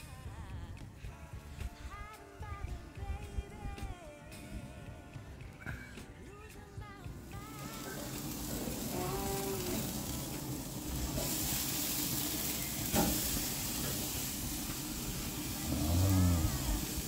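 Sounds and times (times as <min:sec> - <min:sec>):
steak sizzling on a grill: 0:07.2 - 0:17.0.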